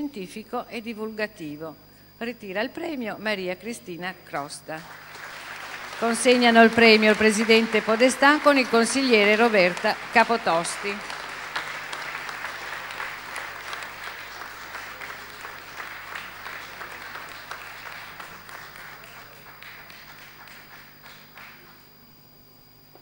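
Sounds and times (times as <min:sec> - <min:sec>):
audience applauding: 0:04.8 - 0:22.0.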